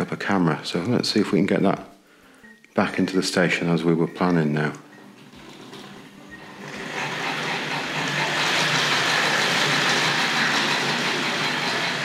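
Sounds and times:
model train running on track: 6.4 - 12.0.

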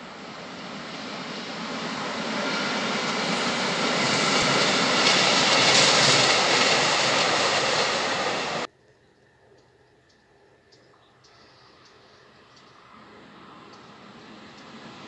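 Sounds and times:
freight train passing: 0.0 - 8.7, 11.8 - 15.0.

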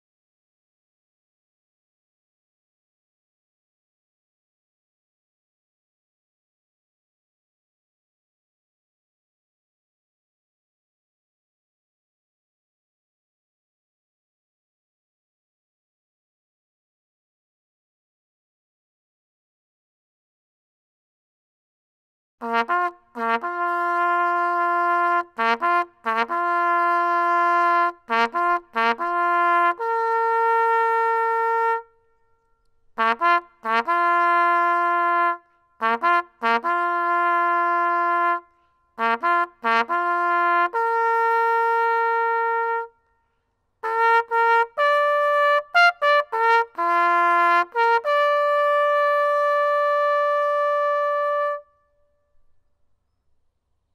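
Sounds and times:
solo trumpet bugle call: 22.4 - 32.0, 33.0 - 43.0, 43.8 - 52.0.

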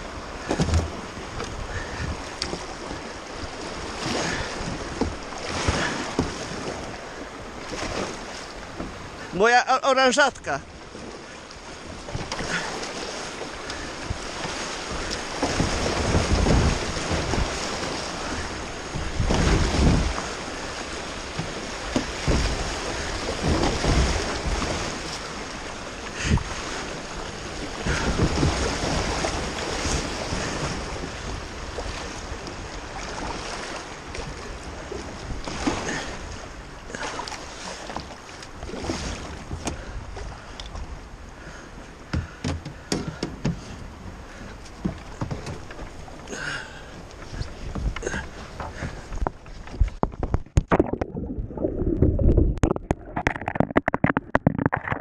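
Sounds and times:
creek water rushing: 0.0 - 33.8
paddle strokes splashing: 0.0 - 55.0
wind buffeting microphone: 13.4 - 33.4, 47.2 - 55.0.

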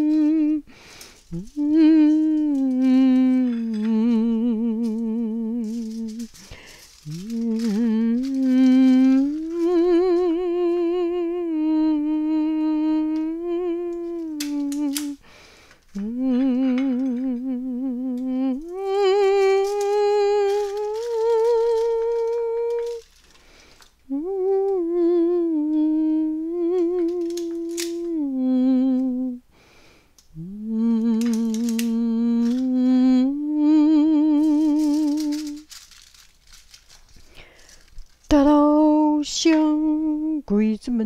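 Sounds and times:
person humming a slow tune: 0.0 - 23.1, 24.1 - 29.6, 30.2 - 35.8, 38.3 - 41.0.

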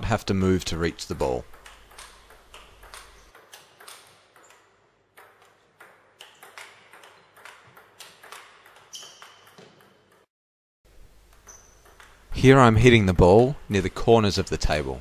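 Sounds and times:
ping pong ball clicking off bats: 1.2 - 10.3, 11.2 - 12.3
ball bouncing on table: 1.3 - 10.3, 11.3 - 12.3.

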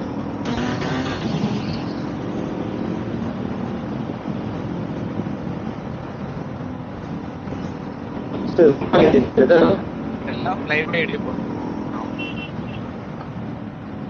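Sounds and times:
motorcycle engine running: 0.0 - 8.4
wind and road noise: 0.0 - 14.0.

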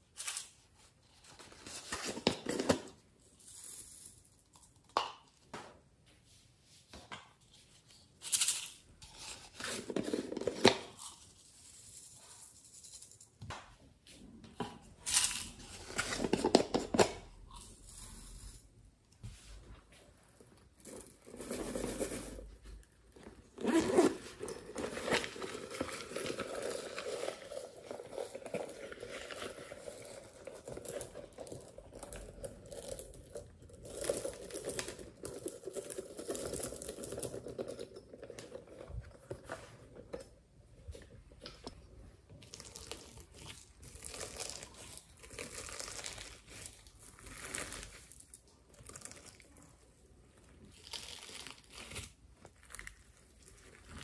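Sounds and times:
beads rustling and clicking: 20.7 - 38.7
slime stretching and crinkling: 42.4 - 54.0.

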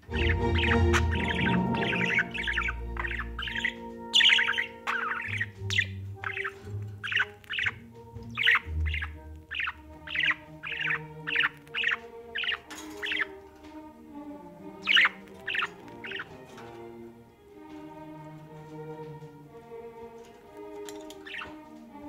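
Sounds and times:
budgerigar chirping: 0.0 - 13.4, 14.6 - 16.6, 21.1 - 21.6.

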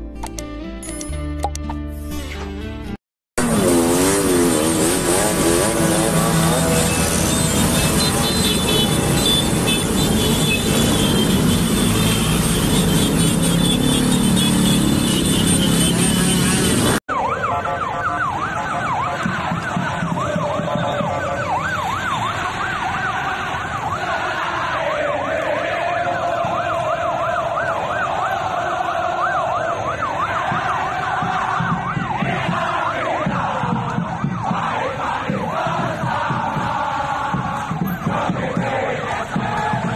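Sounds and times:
motorcycle traffic noise: 3.4 - 39.9
police siren yelping: 17.0 - 39.5.

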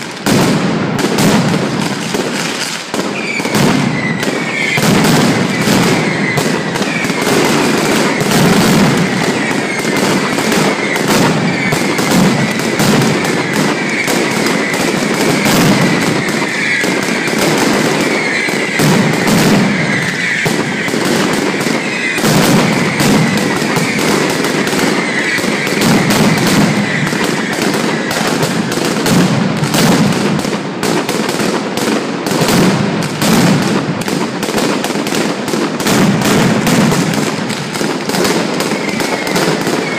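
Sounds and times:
firecrackers crackling: 0.0 - 39.9
high falling whistles: 3.2 - 28.4, 38.5 - 39.9.

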